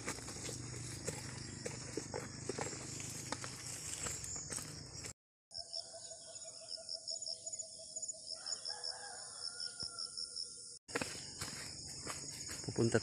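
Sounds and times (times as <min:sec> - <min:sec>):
insect chorus chirping: 0:00.0 - 0:13.0
rooster crowing: 0:08.3 - 0:10.4.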